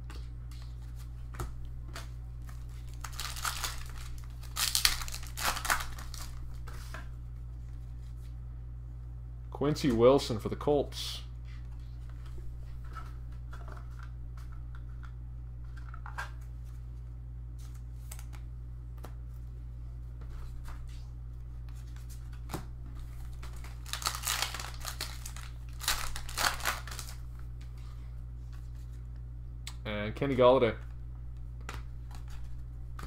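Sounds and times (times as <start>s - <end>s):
cards clicking and rustling: 0.0s - 7.0s, 23.2s - 27.2s
wrappers crinkling and tearing: 2.4s - 6.6s, 23.2s - 27.2s.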